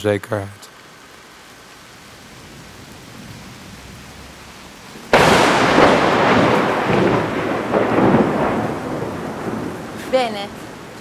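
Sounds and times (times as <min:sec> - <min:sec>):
rain falling: 0:00.0 - 0:11.0
rolling thunderclap: 0:02.2 - 0:11.0.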